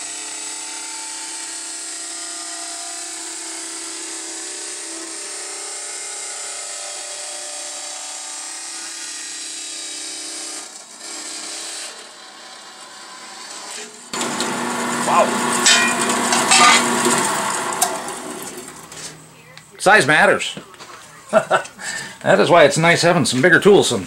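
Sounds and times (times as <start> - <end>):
band saw cutting metal: 0.0 - 19.2.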